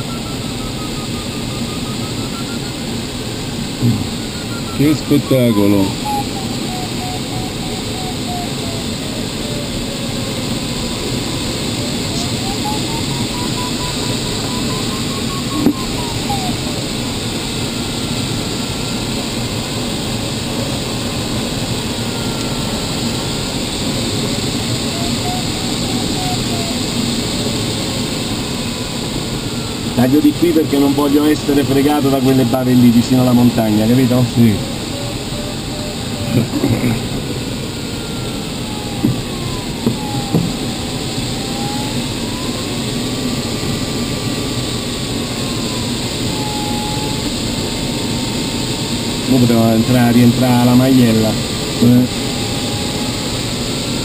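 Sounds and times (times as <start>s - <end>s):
variometer electronic tone: 0.0s - 54.0s
faint high tone: 3.8s - 9.2s.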